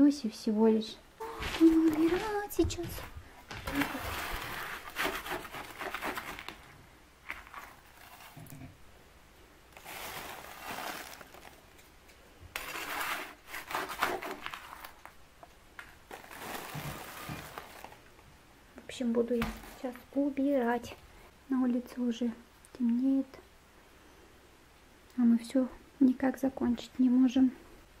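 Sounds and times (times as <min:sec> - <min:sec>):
flakes rustling into plastic bag: 0:01.4 - 0:06.6, 0:09.7 - 0:11.9, 0:12.6 - 0:15.2, 0:15.8 - 0:18.1, 0:19.4 - 0:20.1
metal dustpan scraping concrete: 0:12.6 - 0:14.6.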